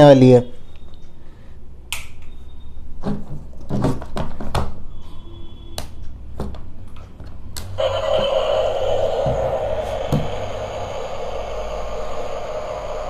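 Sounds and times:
toy motor buzzing: 7.8 - 13.0.

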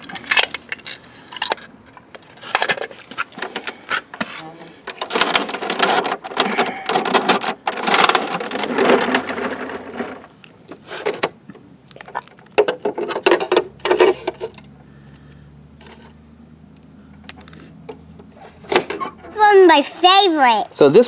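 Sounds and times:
plastic toy parts clattering: 0.0 - 3.7, 4.8 - 10.3.

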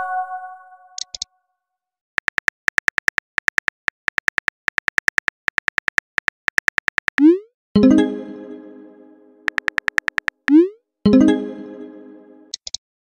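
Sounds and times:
phone keyboard typing clicks: 2.2 - 7.2, 9.5 - 10.6.

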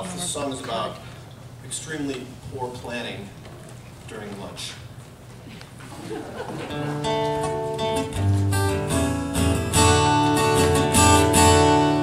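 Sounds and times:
acoustic guitar strumming: 6.7 - 12.0.

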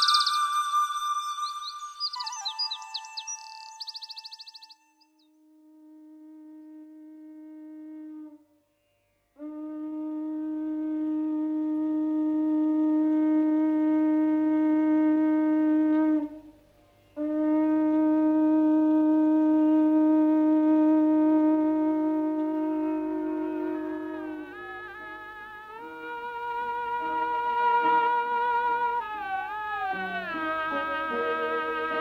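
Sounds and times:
conch shell blasts: 17.2 - 32.0.

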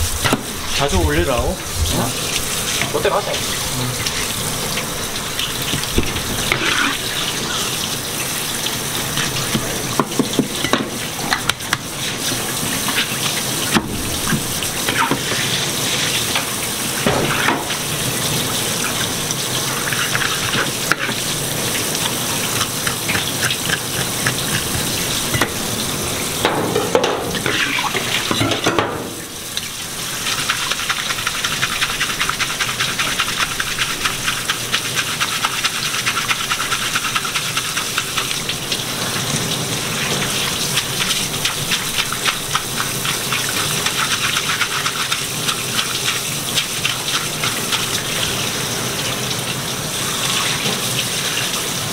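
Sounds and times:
tap water splashing on fish: 5.7 - 6.9, 16.3 - 17.8.

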